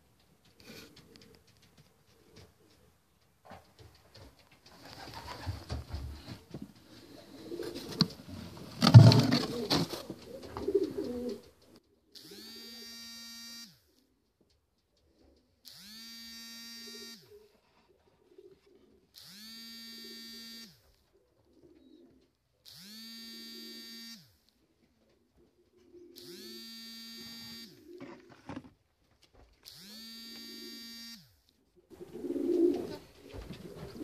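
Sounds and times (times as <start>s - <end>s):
handling and rustling noise: 0.3s - 11.8s
pigeons cooing: 4.8s - 11.9s, 16.9s - 19.2s, 21.1s - 22.3s, 31.9s - 34.0s
even buzz gliding up and down: 12.2s - 14.0s, 15.6s - 17.3s, 19.1s - 20.8s, 22.6s - 24.5s, 26.2s - 28.0s, 29.6s - 34.0s.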